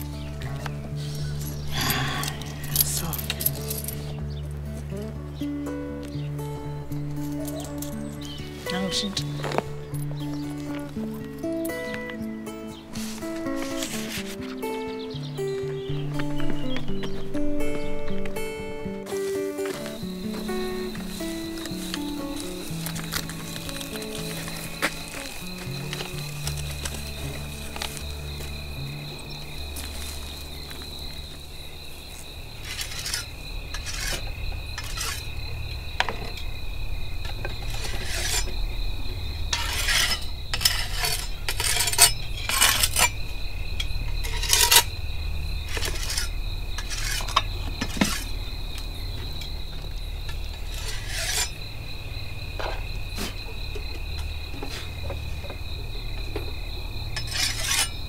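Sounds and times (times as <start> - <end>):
high-pitched insect drone: 0.0 - 4.4, 6.3 - 58.0
scraping and clicking: 32.6 - 35.3, 37.3 - 38.6, 39.5 - 43.2, 43.8 - 44.9, 45.7 - 48.4, 50.3 - 51.6, 57.1 - 58.0.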